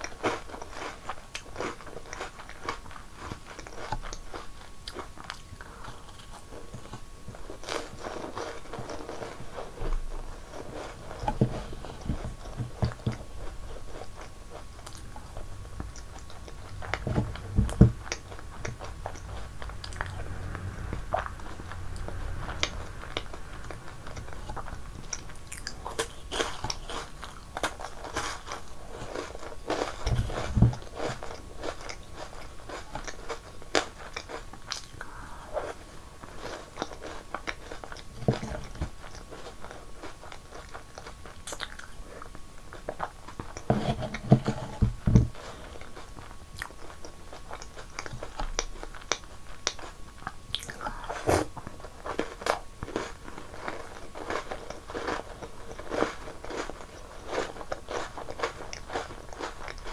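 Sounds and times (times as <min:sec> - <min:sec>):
crunching and chewing snacks: 0:00.0 - 0:59.9
deep chewing thuds: 0:06.2 - 0:33.3.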